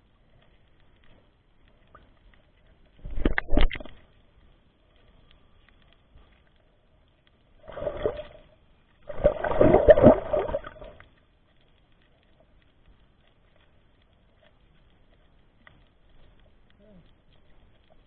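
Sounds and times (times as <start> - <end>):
water gurgling underwater: 3.0 - 4.0, 7.6 - 11.0.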